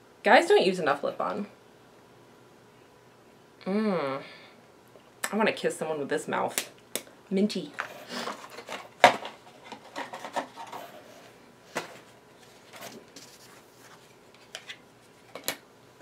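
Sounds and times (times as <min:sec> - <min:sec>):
items clicking and knocking: 0:07.7 - 0:11.0, 0:14.4 - 0:15.6
packaging rustling: 0:08.0 - 0:15.5.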